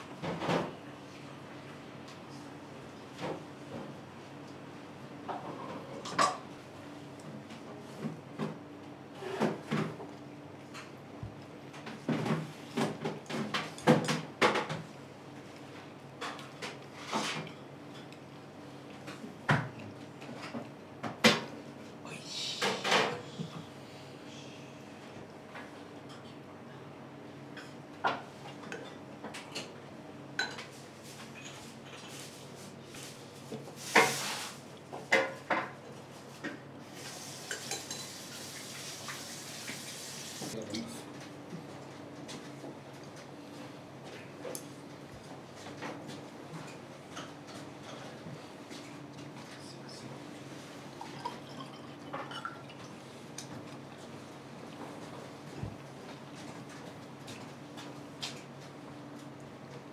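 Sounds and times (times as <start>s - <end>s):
dishes clinking: 30.4s - 30.7s, 37.5s - 38.2s, 51.0s - 52.6s
running water hiss: 37.0s - 40.6s.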